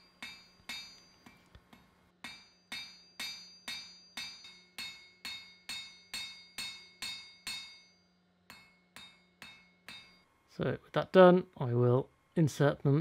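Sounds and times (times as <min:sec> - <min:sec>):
hammer striking steel on anvil: 0:00.0 - 0:10.3.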